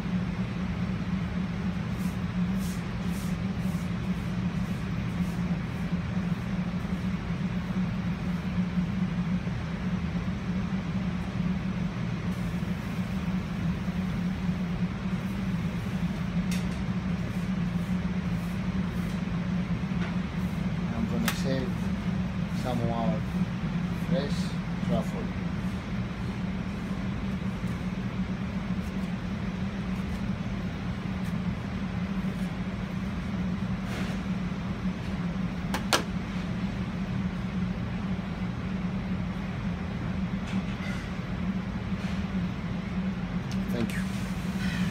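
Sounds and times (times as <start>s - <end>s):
kitchen machinery hum: 0.0s - 44.9s.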